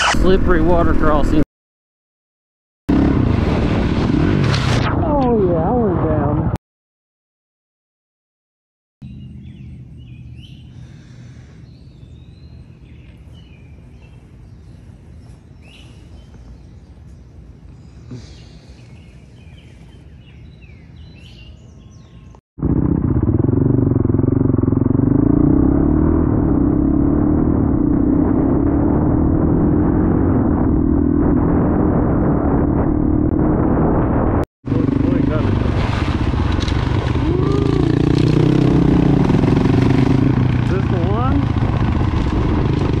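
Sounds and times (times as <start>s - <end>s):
wild birds calling: 9.0s - 22.4s
motorcycle engine running: 22.6s - 31.6s, 34.7s - 43.0s
low rumble: 22.6s - 43.0s.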